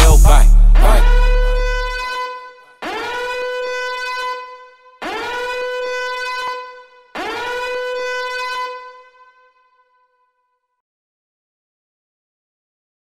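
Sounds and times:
horn blasts: 0.0 - 10.3.

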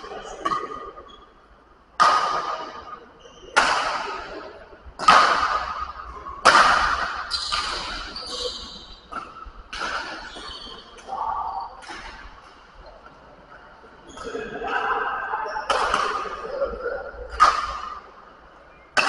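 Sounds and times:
rackets hitting shuttlecock: 2.0 - 12.6, 15.7 - 16.6, 17.2 - 18.1.

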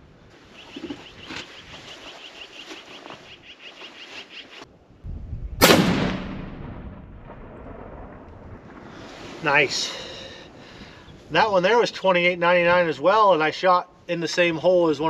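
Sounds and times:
rifle shot: 5.6 - 8.8.

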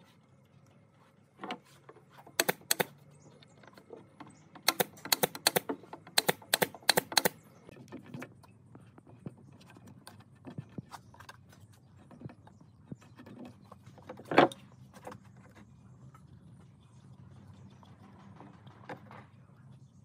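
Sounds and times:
sharp clicks: 2.4 - 3.0, 4.6 - 7.4.

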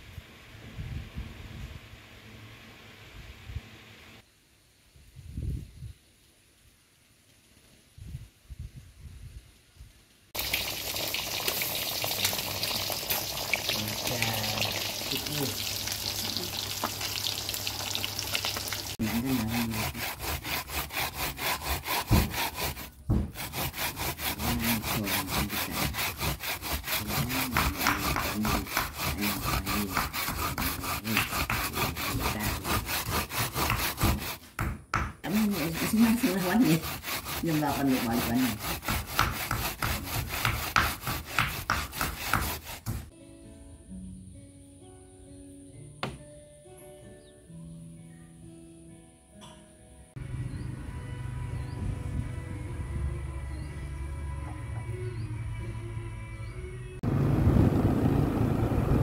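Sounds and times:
fish sizzling in hot oil: 10.4 - 19.0
food scraping on metal grater: 18.5 - 22.9, 23.5 - 34.5, 35.3 - 43.0.

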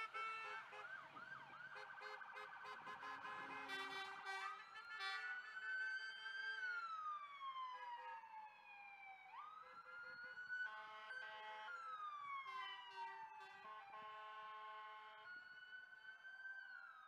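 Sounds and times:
emergency vehicle siren wailing: 0.0 - 17.0.

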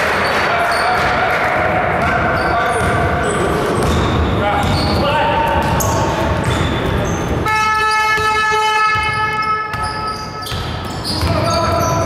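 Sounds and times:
arena buzzer horn: 7.4 - 9.7.

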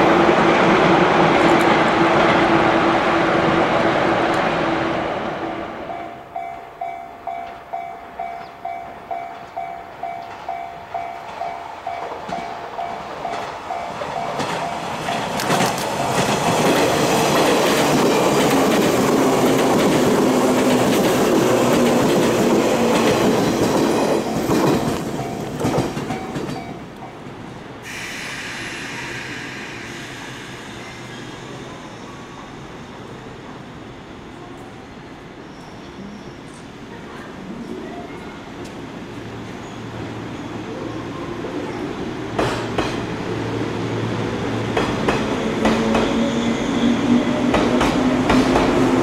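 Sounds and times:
electric train passing: 0.0 - 37.0, 38.6 - 49.0
level crossing warning bell: 5.9 - 15.1
train wheels clattering: 8.3 - 27.2, 42.4 - 43.1, 44.7 - 49.0.

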